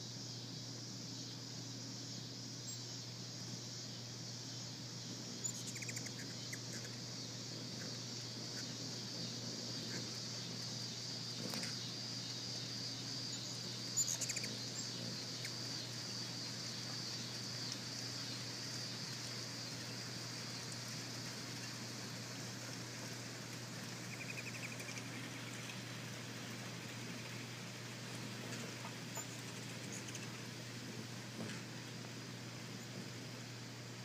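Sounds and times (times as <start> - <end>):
high-pitched insect drone: 0.0 - 22.6.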